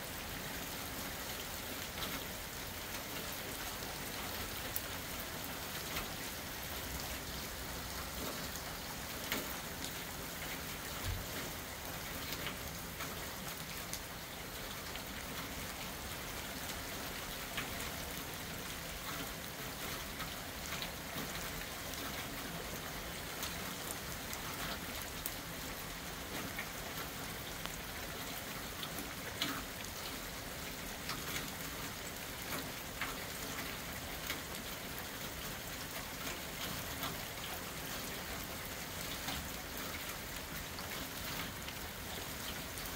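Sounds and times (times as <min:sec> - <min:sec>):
rain on concrete: 0:00.0 - 0:42.9
raindrops ticking: 0:01.3 - 0:42.9.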